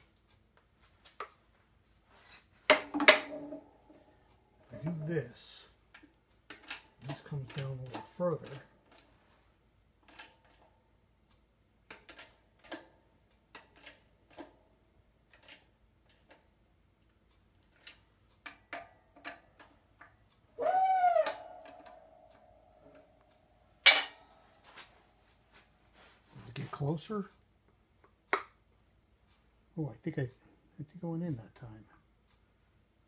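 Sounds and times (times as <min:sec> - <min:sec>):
sharp metal clank: 0:23.8 - 0:24.3.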